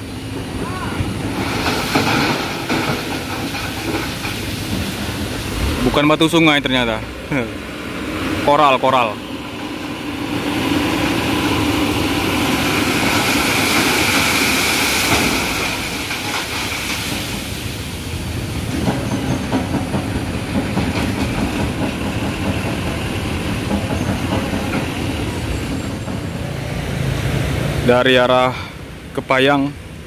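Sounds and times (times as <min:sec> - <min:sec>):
gravel rushing hiss: 0:00.8 - 0:06.8, 0:09.2 - 0:18.8.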